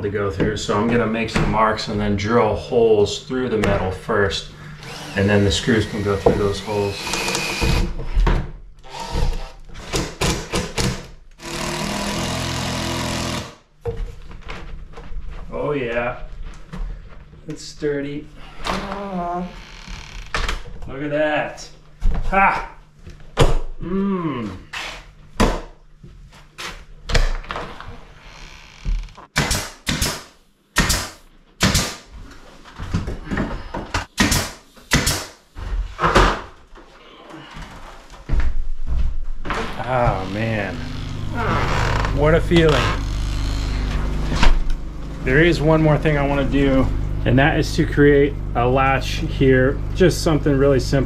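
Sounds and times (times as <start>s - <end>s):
cordless drill running: 4.7s - 8.0s, 8.9s - 9.6s, 11.4s - 13.6s, 42.9s - 44.0s.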